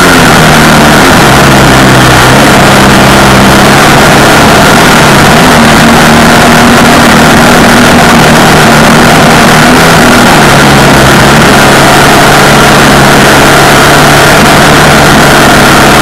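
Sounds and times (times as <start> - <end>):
off-road vehicle engine running: 0.0 - 16.0
rush of noise: 0.0 - 16.0.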